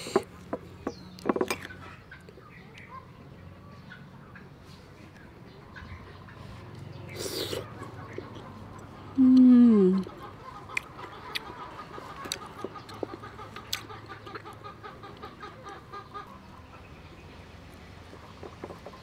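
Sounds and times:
woman humming with enjoyment: 0:09.2 - 0:10.1
hen clucking: 0:09.9 - 0:17.0.

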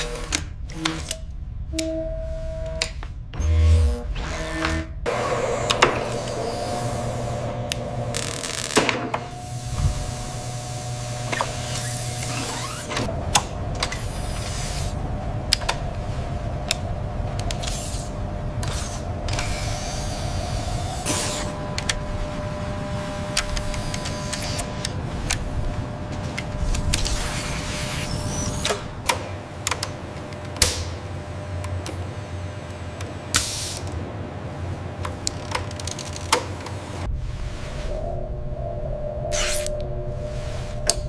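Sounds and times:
small motors whirring: 0:05.6 - 0:13.1.

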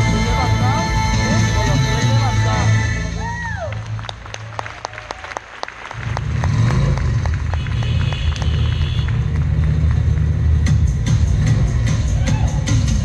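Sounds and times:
bass music: 0:00.0 - 0:04.5, 0:06.0 - 0:13.0
audience clapping: 0:03.4 - 0:10.6.

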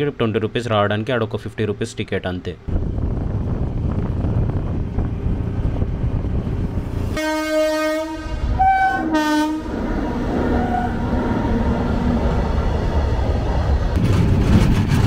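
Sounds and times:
horn honking: 0:07.1 - 0:09.8, 0:10.5 - 0:11.0.

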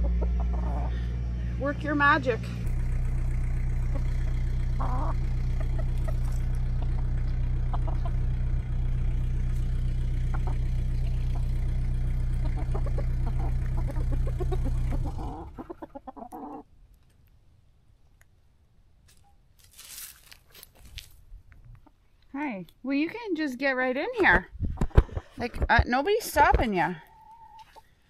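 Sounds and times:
chickens clucking: 0:00.0 - 0:01.4, 0:03.7 - 0:16.7, 0:26.4 - 0:27.9
low engine drone: 0:00.0 - 0:16.0.

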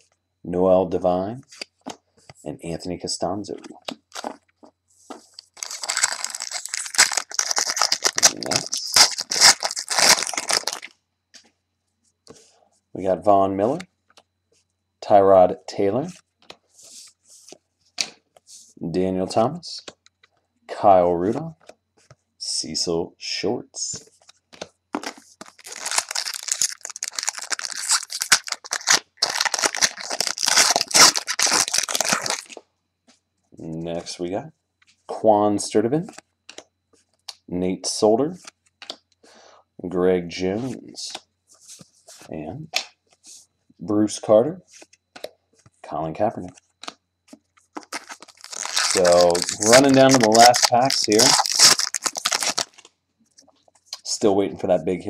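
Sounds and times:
foil wrapper crinkling and tearing: 0:04.1 - 0:04.4, 0:05.3 - 0:10.9, 0:25.0 - 0:32.6, 0:47.8 - 0:52.9.

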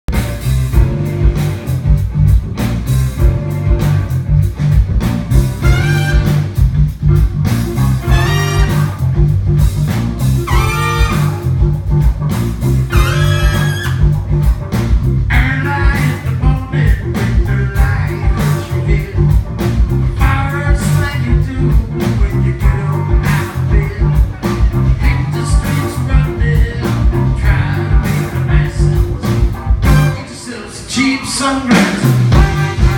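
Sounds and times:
melodic lead guitar lines: 0:00.1 - 0:30.4
live band playing blues-rock: 0:00.1 - 0:32.9.

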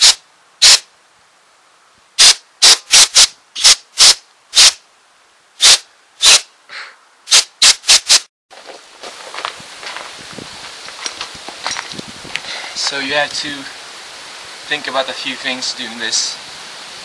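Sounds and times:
compressed air blasts: 0:00.0 - 0:00.9, 0:02.2 - 0:04.8, 0:05.6 - 0:08.3.

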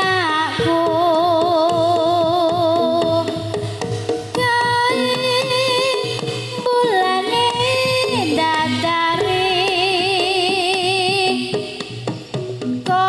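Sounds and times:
steady drumming: 0:00.0 - 0:13.0.

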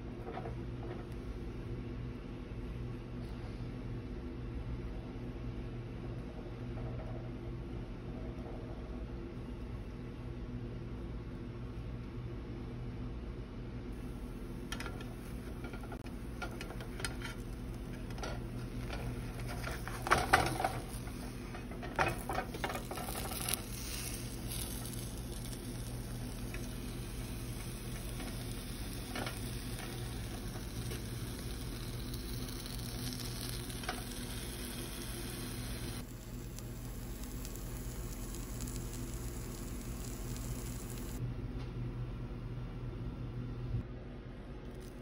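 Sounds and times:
batter sizzling in oil: 0:14.0 - 0:41.2
spatula scraping a pan: 0:16.4 - 0:25.5.

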